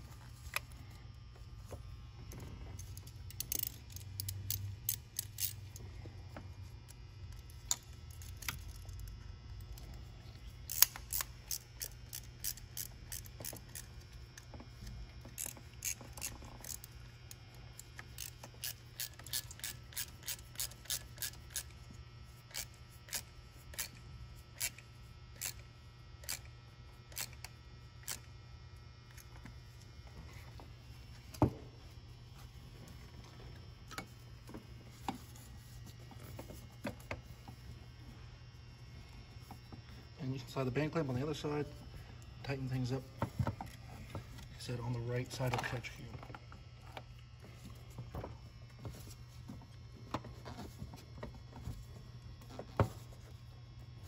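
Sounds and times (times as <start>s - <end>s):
hand ratchet clicking: 2.8s - 5.8s, 10.7s - 14.0s, 15.3s - 21.7s, 22.5s - 24.0s, 25.4s - 25.6s, 26.2s - 26.5s, 27.1s - 28.3s.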